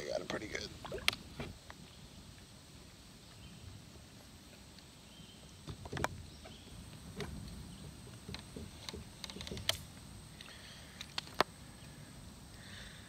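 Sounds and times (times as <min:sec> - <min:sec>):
light knocks and clicks in kayak: 0:05.6 - 0:11.5.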